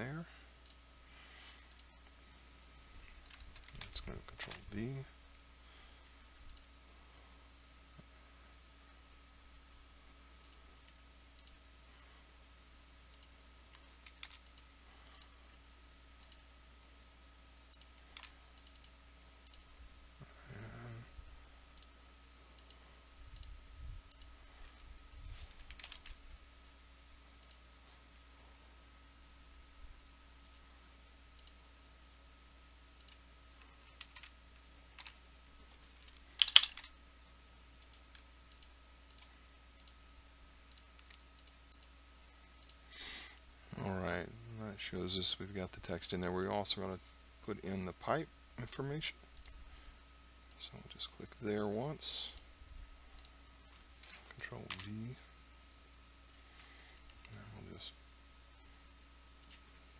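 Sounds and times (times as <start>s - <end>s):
faint electrical hum: 0.0s - 59.9s
computer mouse clicks: 1.4s - 2.2s, 6.3s - 6.7s, 10.4s - 11.6s, 13.1s - 15.4s, 16.2s - 16.4s, 17.7s - 19.7s, 22.6s - 26.2s, 27.3s - 27.7s, 30.4s - 30.7s, 31.4s - 31.6s, 33.0s - 35.2s, 35.9s - 36.9s, 37.8s - 40.0s, 40.7s - 42.8s, 49.3s - 49.6s, 53.1s - 55.1s, 59.4s - 59.7s
keyboard keystrokes: 36.4s - 36.9s.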